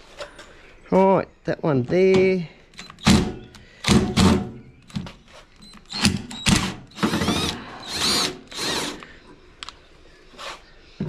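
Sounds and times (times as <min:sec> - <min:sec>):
cordless drill driving a screw: 0:05.6 - 0:09.0.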